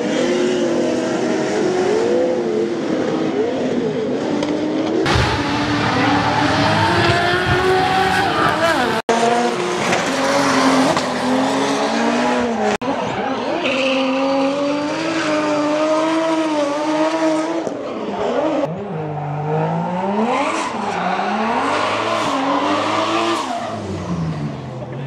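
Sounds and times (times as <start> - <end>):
car engines revving high: 0.0 - 25.0
tire squeal: 12.5 - 15.4, 20.4 - 24.5.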